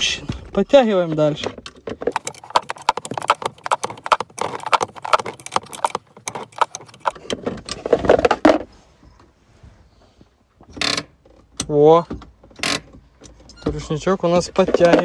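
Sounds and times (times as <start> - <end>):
wrench clicking and tapping: 2.2 - 7.1.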